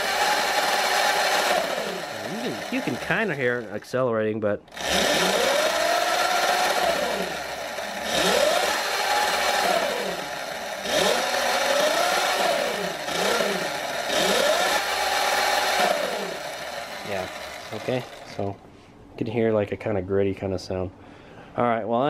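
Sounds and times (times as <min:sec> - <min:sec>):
electric motor whining: 0:00.0 - 0:03.8, 0:04.7 - 0:18.6
gritty grinding sound: 0:00.0 - 0:03.9, 0:04.7 - 0:18.5.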